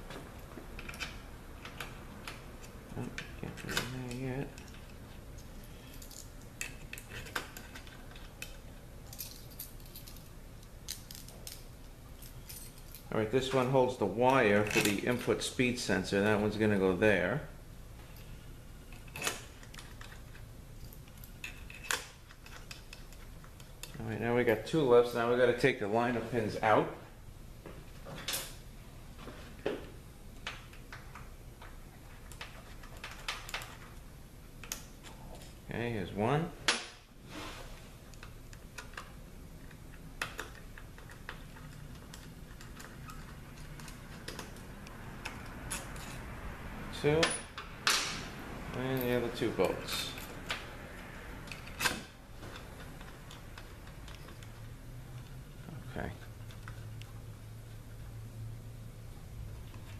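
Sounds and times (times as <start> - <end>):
small steel bolts clinking: 0.3 - 15.4, 18.1 - 24.0, 47.0 - 50.7
small metal parts clicking: 0.4 - 13.1, 18.9 - 24.0.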